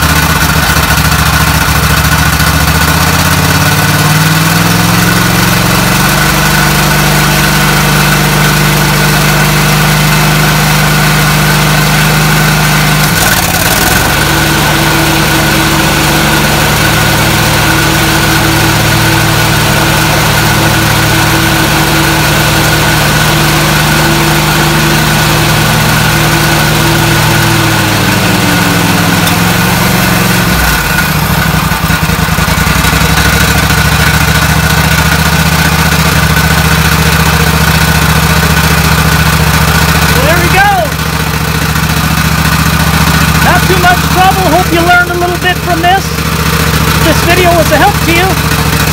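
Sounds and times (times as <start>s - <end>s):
riding mower engine running: 0.0s - 48.9s.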